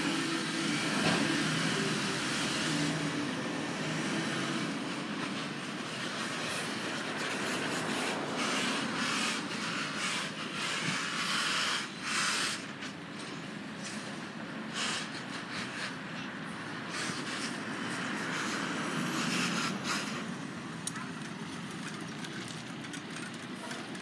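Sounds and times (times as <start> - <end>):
garbage truck engine pulling away: 0.0 - 10.2
passing car traffic hiss: 0.0 - 23.7.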